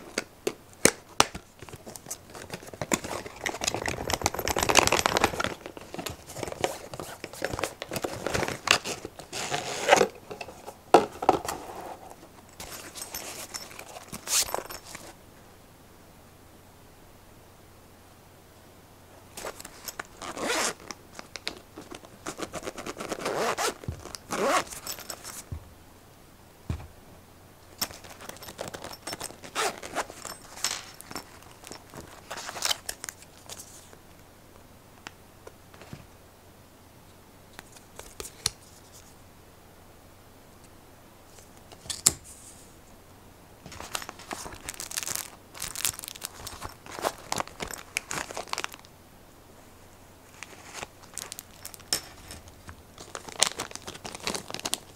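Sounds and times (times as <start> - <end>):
pouch rustling: 1.6 - 15.2, 19.4 - 20.9, 21.8 - 25.7, 27.8 - 33.8, 43.7 - 48.8, 50.3 - 54.9
zipper rasping open: 2.4 - 10.2, 19.4 - 20.9, 22.2 - 25.5, 28.0 - 30.4.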